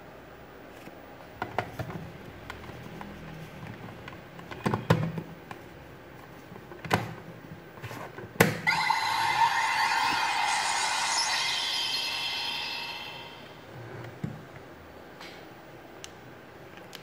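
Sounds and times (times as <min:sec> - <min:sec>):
toy belt electronic sound effect: 0:08.7 - 0:13.7.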